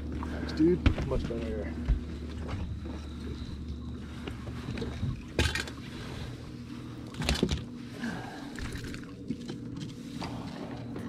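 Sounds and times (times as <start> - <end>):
steady low hum: 0.0 - 11.0
knocks on boat deck: 0.8 - 1.3.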